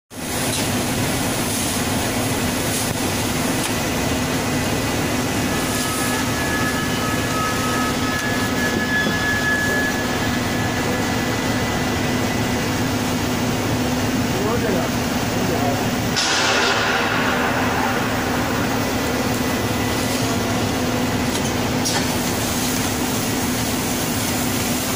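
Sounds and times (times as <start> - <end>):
thin high whistle: 5.4 - 12.7.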